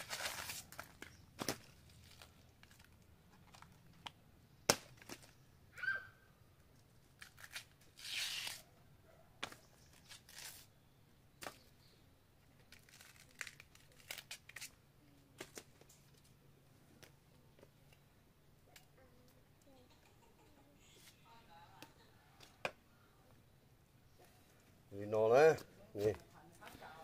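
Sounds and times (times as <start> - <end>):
tearing rip of peeled stalk: 7.1 - 8.7, 9.9 - 10.7, 12.7 - 14.8.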